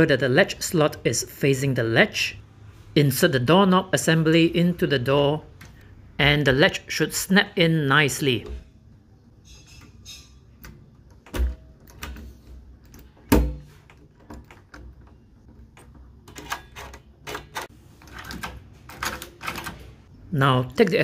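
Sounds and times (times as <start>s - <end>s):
doorknob metal clicks and knocks: 10.6s - 19.8s.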